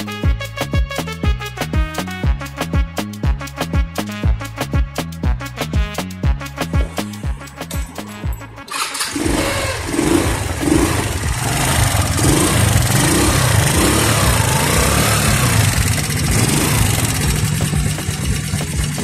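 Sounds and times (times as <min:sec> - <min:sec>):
scooter engine running: 0:08.7 - 0:19.0.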